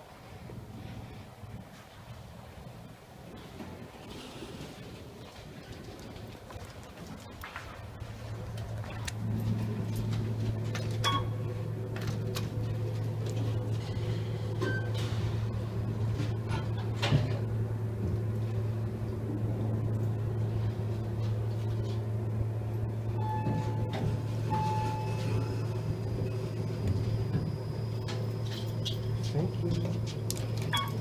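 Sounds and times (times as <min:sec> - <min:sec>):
elevator low hum: 0:00.0 - 0:31.0
short beeps: 0:23.2 - 0:25.8.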